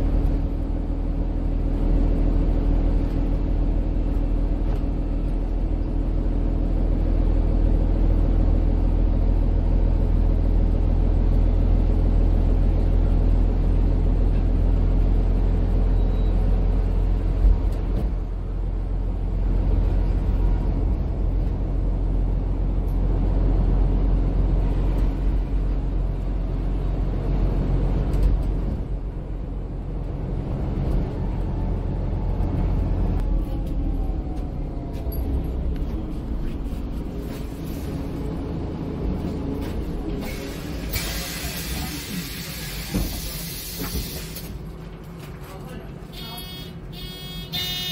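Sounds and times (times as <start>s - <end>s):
bus engine and road rumble: 0.0s - 47.9s.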